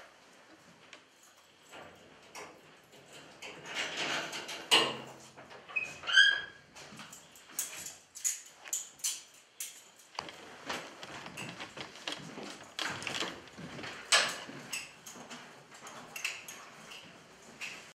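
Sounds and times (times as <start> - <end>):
rustling: 9.4 - 15.8
footsteps: 10.0 - 14.8.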